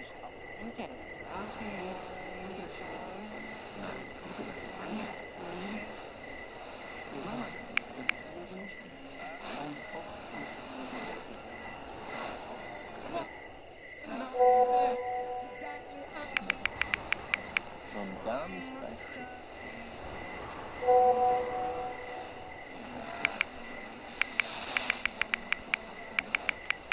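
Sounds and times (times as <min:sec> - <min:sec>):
cricket chirping: 0:00.0 - 0:26.9
sharp clicks: 0:06.8 - 0:08.4, 0:16.2 - 0:17.8, 0:23.1 - 0:26.9.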